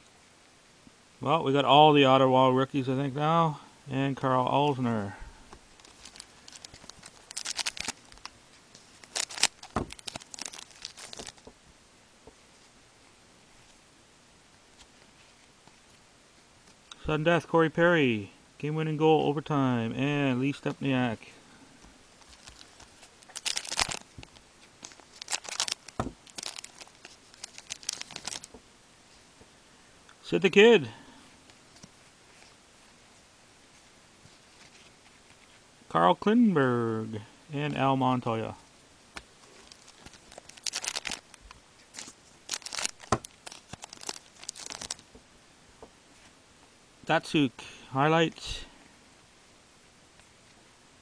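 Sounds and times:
foil card wrappers crinkling: 5.8 - 11.5, 22.2 - 28.6, 39.4 - 45.1.

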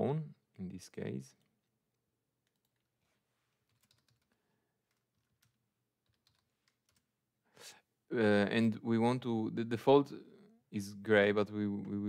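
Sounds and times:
computer keyboard typing: 2.4 - 2.9, 3.6 - 7.1.

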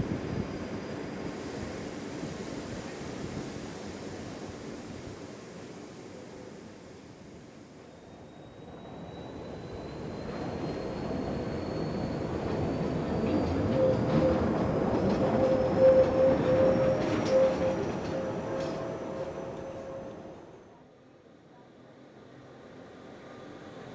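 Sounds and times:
train rumbling along track: 0.0 - 20.8
faint high whine rising: 1.2 - 13.1.

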